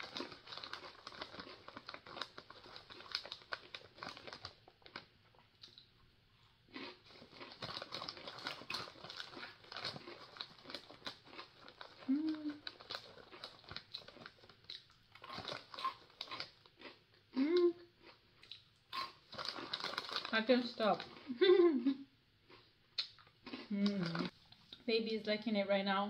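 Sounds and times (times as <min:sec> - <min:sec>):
plastic snack bag crinkling: 0:00.0 - 0:05.9, 0:06.7 - 0:17.0, 0:18.9 - 0:21.5.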